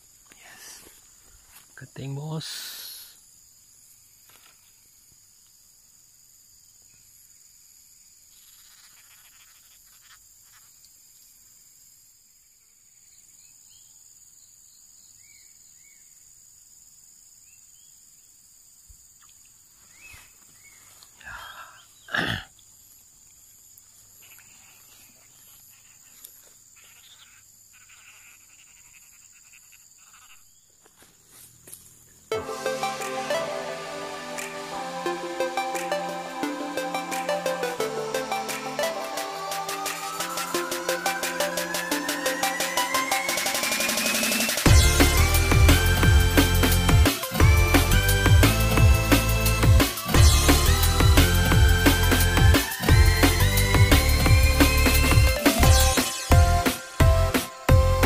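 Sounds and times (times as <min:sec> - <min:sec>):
insects chorus: 0:00.0 - 0:58.0
frogs pulsed trilling: 0:24.0 - 0:30.7, 0:35.1 - 0:58.0.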